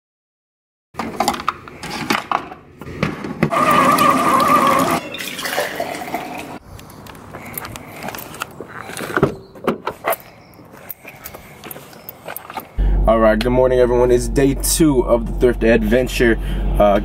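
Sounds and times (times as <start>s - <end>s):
coffee pouring into cup: 4.4s - 6.6s.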